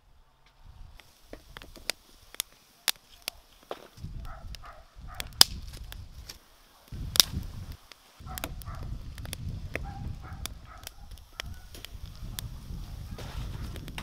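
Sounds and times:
wooden sticks snapping: 0:00.5 - 0:12.5
low rumble: 0:07.0 - 0:14.0.

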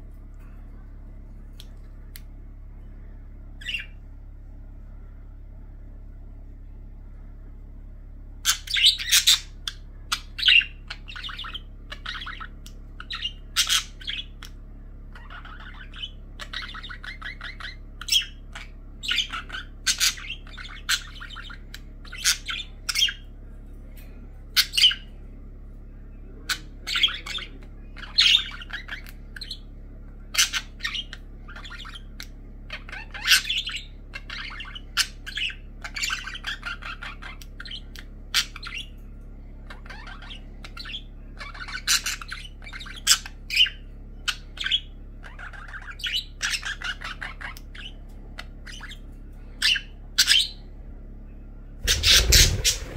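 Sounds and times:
budgerigars chirping and squawking: 0:03.6 - 0:04.0, 0:08.4 - 0:23.3, 0:24.5 - 0:25.2, 0:26.3 - 0:50.7, 0:51.8 - 0:52.9.

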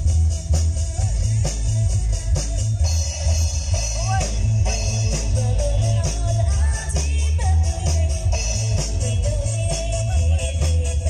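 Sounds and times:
cymbals: 0:00.0 - 0:11.0
live band playing: 0:00.0 - 0:11.0
person singing: 0:03.7 - 0:11.0.

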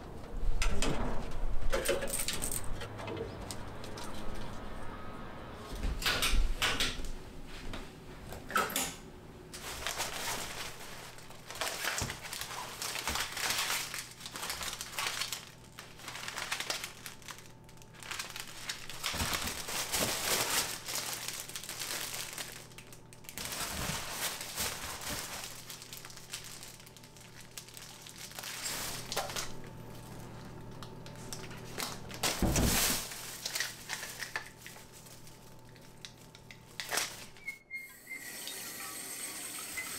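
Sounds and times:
plastic bags rustling: 0:09.5 - 0:37.6.

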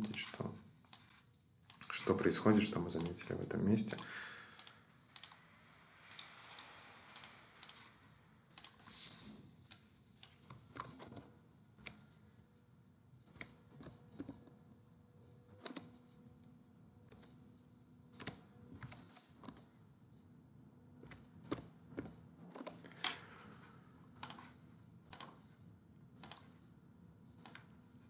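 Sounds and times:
keyboard typing: 0:00.0 - 0:08.9, 0:09.6 - 0:12.1, 0:15.5 - 0:16.1, 0:24.2 - 0:24.5, 0:25.1 - 0:25.5, 0:26.2 - 0:26.6
mouse clicks: 0:03.0 - 0:03.2, 0:06.0 - 0:07.9, 0:08.5 - 0:08.9.

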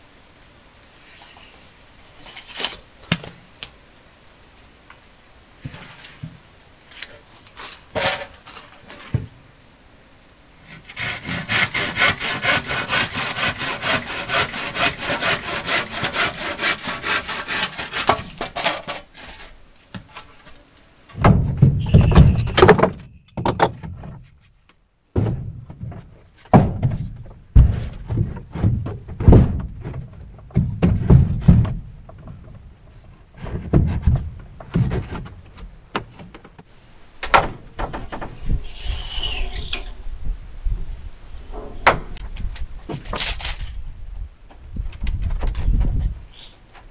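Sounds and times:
rasping strokes on wood: 0:10.9 - 0:18.9
heavy knocks and chops on wood: 0:26.5 - 0:29.9.

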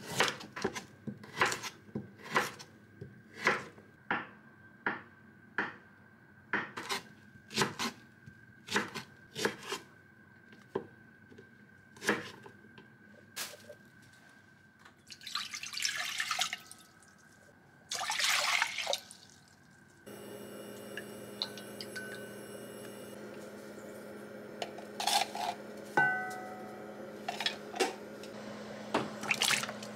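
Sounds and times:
steady hum: 0:20.1 - 0:29.9
water running from a tap: 0:21.0 - 0:22.2, 0:29.2 - 0:29.9
dishes and utensils clinking: 0:24.6 - 0:28.0.

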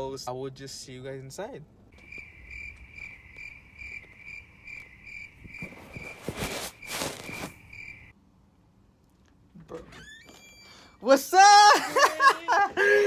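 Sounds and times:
rustling and handling noise: 0:05.4 - 0:08.0.

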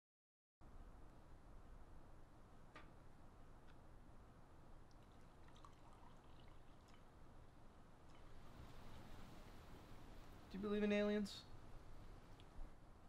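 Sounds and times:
low background hiss: 0:00.6 - 0:13.0
faint small clicks: 0:02.7 - 0:03.0, 0:12.3 - 0:12.6.

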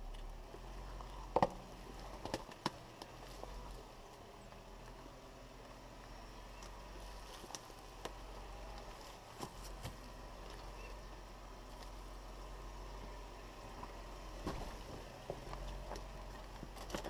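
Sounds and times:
off-road vehicle engine running: 0:00.0 - 0:17.0
tyres knocking over rocks: 0:14.4 - 0:17.0.

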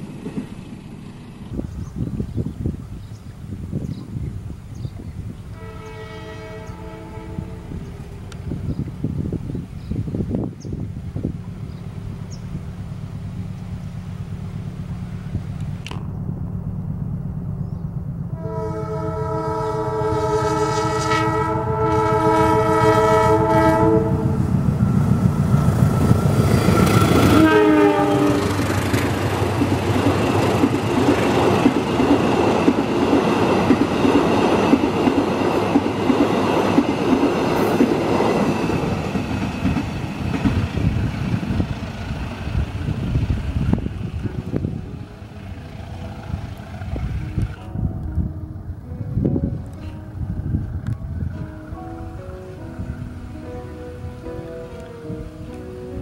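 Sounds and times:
wheels clattering on rails: 0:00.0 - 0:02.0, 0:24.4 - 0:47.8
locomotive engine rumbling: 0:00.0 - 0:56.0
locomotive horn: 0:05.5 - 0:08.1, 0:18.3 - 0:24.6, 0:26.4 - 0:29.0.

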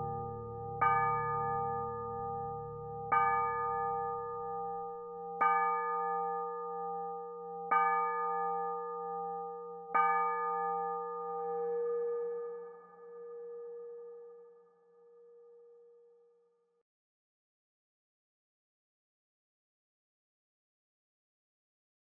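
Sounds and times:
church bell tolling: 0:00.0 - 0:15.8.

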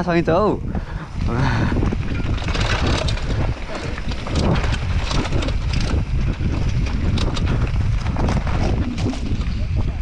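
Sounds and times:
wind buffeting microphone: 0:00.0 - 0:10.0
bike clattering and rattling: 0:00.2 - 0:10.0.

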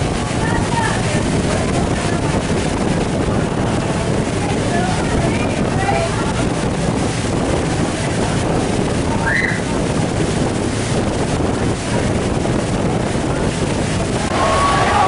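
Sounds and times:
waterfall roaring: 0:00.0 - 0:02.5, 0:13.3 - 0:15.0
wind buffeting microphone: 0:00.0 - 0:15.0.

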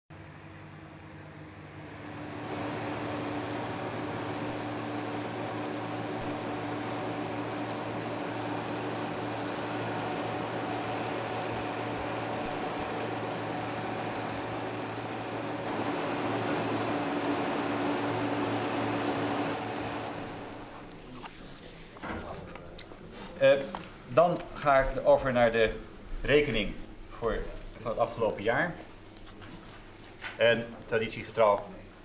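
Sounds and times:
harvester mechanical hum: 0:00.2 - 0:21.6.

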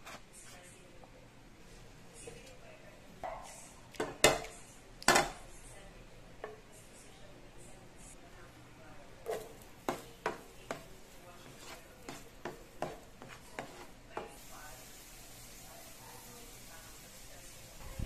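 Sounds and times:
spatula knocking in frying pan: 0:09.2 - 0:14.4
butter and peppers sizzling: 0:09.2 - 0:18.0.

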